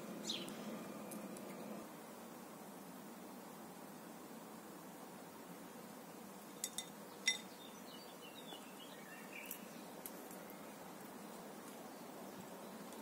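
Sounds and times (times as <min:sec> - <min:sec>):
soft outdoor hiss: 0:00.0 - 0:13.0
faint bird chirps: 0:00.2 - 0:00.9, 0:06.6 - 0:13.0
glass clinks: 0:06.6 - 0:07.5.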